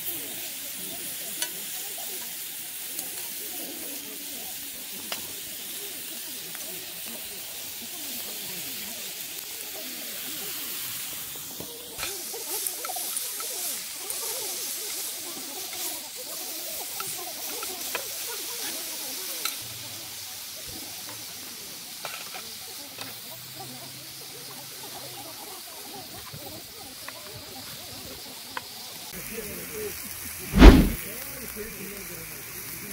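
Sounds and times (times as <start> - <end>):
steak sizzling in a pan: 0.0 - 19.6.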